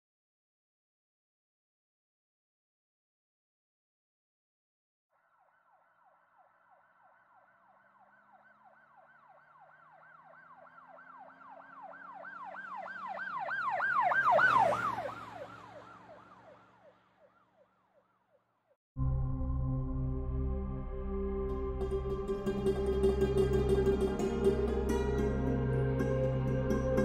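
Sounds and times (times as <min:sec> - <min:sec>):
emergency siren yelping: 0:05.6 - 0:17.6
road noise and engine hum: 0:10.2 - 0:17.2.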